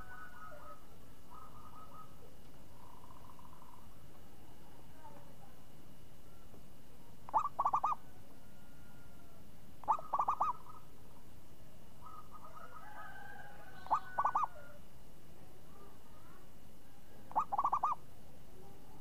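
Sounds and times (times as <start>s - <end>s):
dove cooing: 0.0s - 4.0s, 7.3s - 11.0s, 12.0s - 14.8s, 17.1s - 18.0s
faint bird calls: 0.0s - 4.5s, 7.3s - 11.2s, 12.0s - 14.8s, 15.7s - 19.0s.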